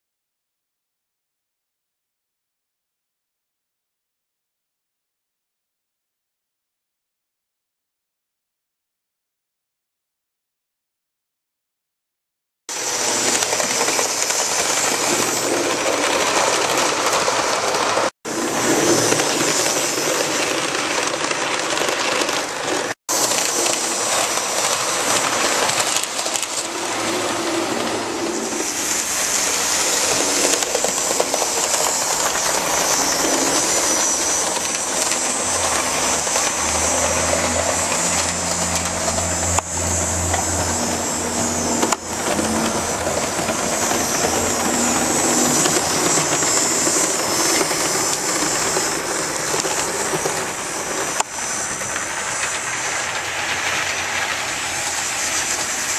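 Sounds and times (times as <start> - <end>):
model train running on track: 12.7 - 55.9.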